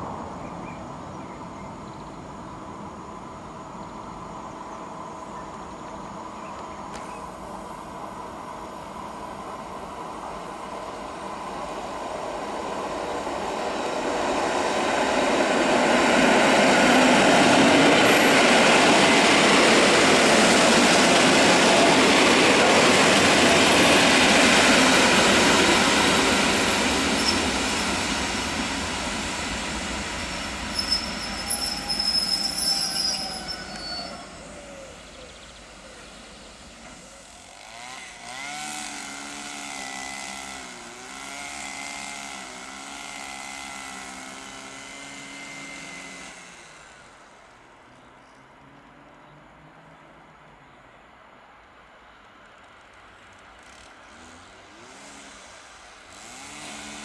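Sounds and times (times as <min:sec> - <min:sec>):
train wheels rumbling on rail: 0:00.0 - 0:47.6
high wheel or brake squeals: 0:27.1 - 0:27.5, 0:30.6 - 0:35.0.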